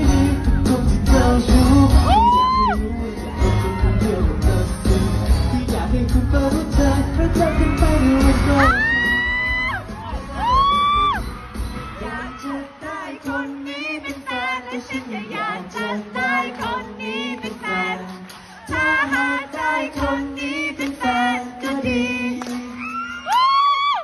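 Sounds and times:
musical accompaniment: 0.0s - 23.1s
women singing: 12.0s - 22.8s.

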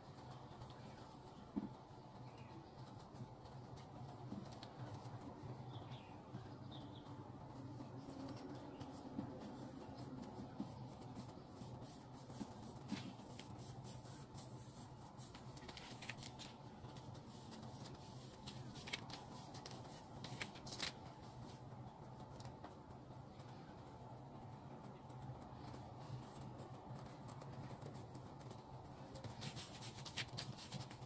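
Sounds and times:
dough rolling rustle: 0.0s - 31.0s
low steady hum: 0.0s - 31.0s.

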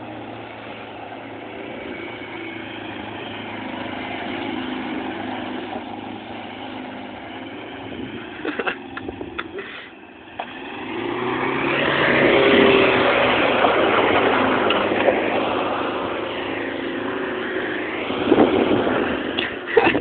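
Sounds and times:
pickup engine revving: 0.0s - 19.9s
tyre and wind noise: 7.5s - 9.6s, 17.8s - 20.0s.

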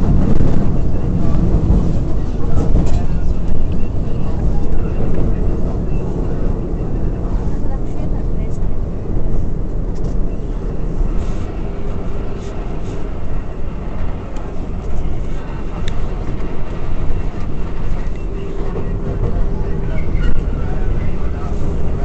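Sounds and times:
wheels rumbling on rails: 0.0s - 22.0s.

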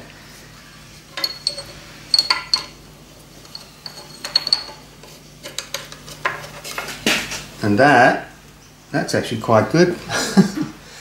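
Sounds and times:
metal bracket clinking: 1.2s - 2.8s, 3.4s - 4.9s.

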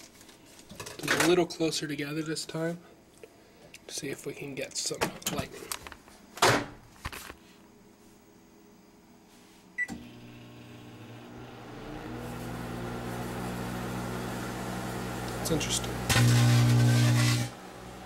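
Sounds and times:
microwave oven humming: 9.8s - 18.0s.

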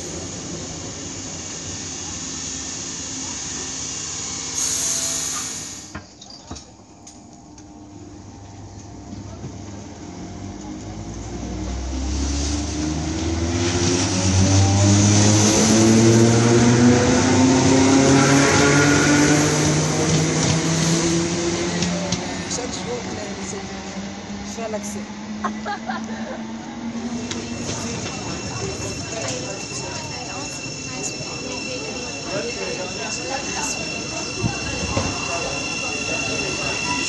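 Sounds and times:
train running past: 0.0s - 6.0s, 6.8s - 37.0s
electric train motors whining: 0.0s - 6.1s, 18.4s - 37.0s.

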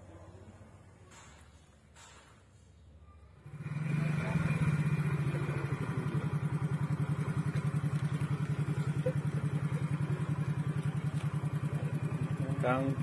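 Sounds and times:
scooter engine idling: 3.3s - 13.0s.

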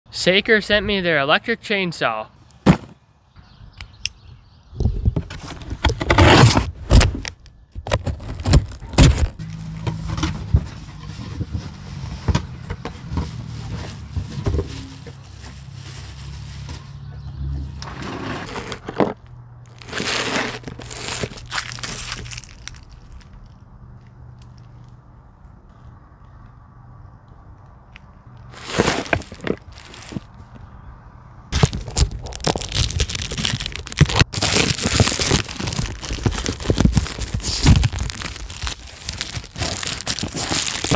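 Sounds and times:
cardboard flaps scraping: 5.2s - 16.9s, 17.8s - 21.4s, 28.5s - 30.3s, 31.6s - 40.9s
plastic bag crinkling: 19.7s - 23.4s, 28.5s - 30.3s, 31.6s - 40.9s.

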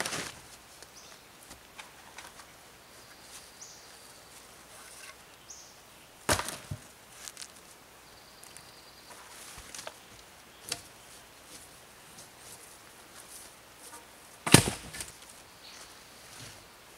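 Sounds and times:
wooden stake knocking on landing: 6.3s - 6.8s.

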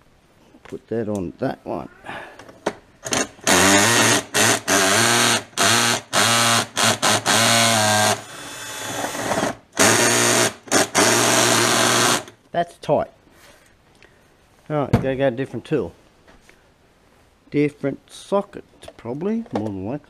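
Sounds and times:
cordless drill whining: 3.0s - 12.4s.

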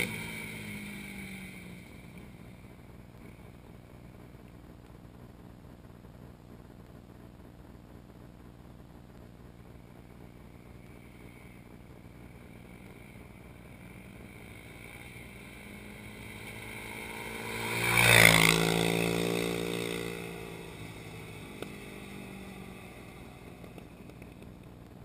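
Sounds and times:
atv engine passing by: 0.0s - 3.5s, 12.4s - 24.6s.

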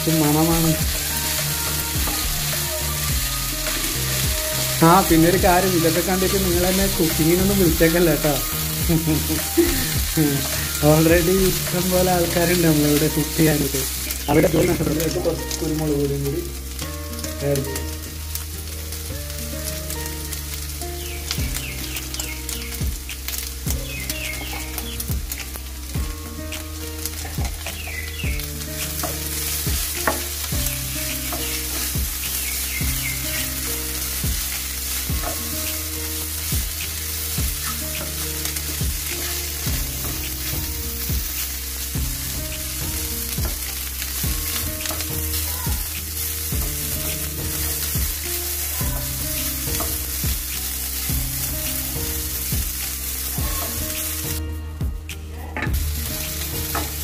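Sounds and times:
meat sizzling in oil: 0.0s - 54.4s, 55.7s - 57.0s
spatula scraping and tapping pan: 26.6s - 28.2s, 28.8s - 30.5s.

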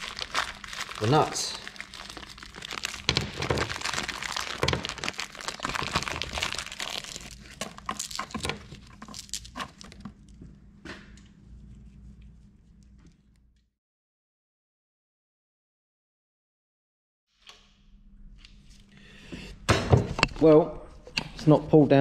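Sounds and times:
packaging crinkling: 0.0s - 10.2s.

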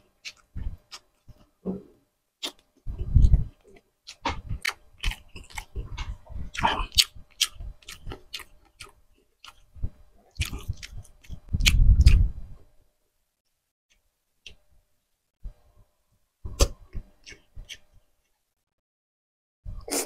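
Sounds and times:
person chewing food: 0.0s - 1.8s, 2.4s - 12.3s, 16.6s - 17.9s.

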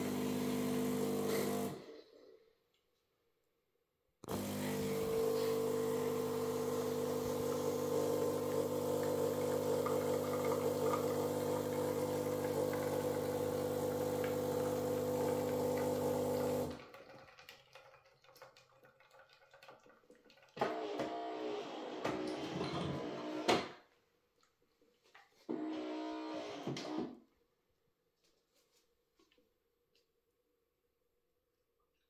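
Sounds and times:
espresso machine pump humming: 0.0s - 1.8s, 4.3s - 16.8s.

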